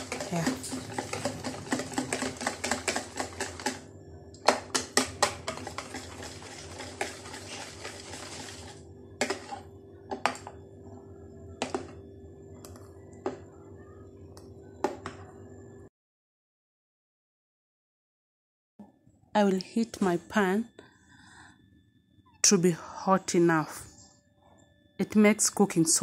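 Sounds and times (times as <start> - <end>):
whisk clicking against bowl: 0.0 - 8.6
faint steady hum: 18.8 - 26.0.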